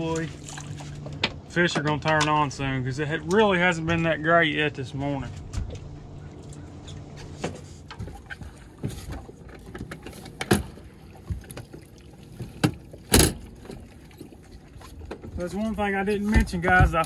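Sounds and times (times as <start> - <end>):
metal clunks of boat motor mount: 1.1 - 2.4, 9.6 - 10.8, 12.5 - 13.8.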